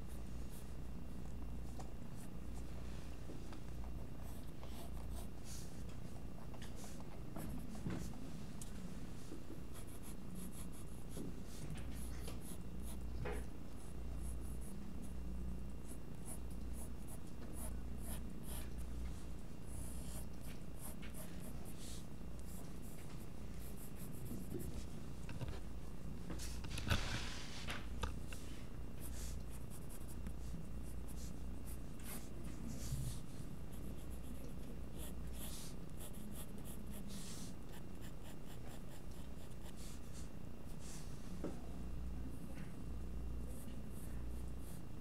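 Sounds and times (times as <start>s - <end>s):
steady low hum: 0.0s - 45.0s
pencil lead scratching paper: 9.7s - 13.0s, 29.0s - 41.0s.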